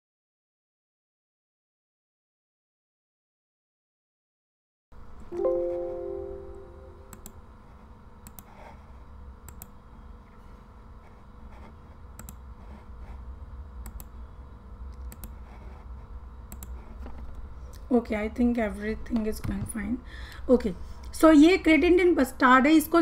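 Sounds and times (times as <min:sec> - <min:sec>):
low steady hum: 0:05.0 - 0:23.0
computer alert chime: 0:05.4 - 0:07.3
computer mouse clicks: 0:08.2 - 0:08.8, 0:09.4 - 0:09.8, 0:11.6 - 0:12.4, 0:13.8 - 0:14.2, 0:14.9 - 0:15.8, 0:16.5 - 0:17.2.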